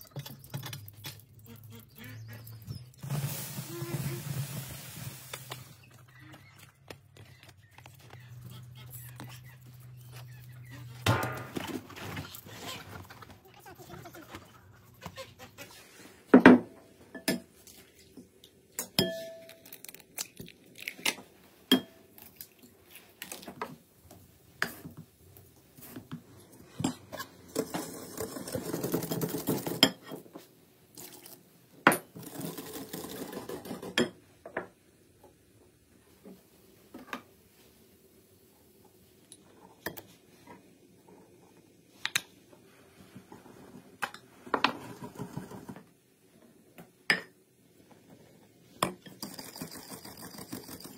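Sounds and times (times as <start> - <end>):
wire whisk beating mixture: 49.0 - 50.9.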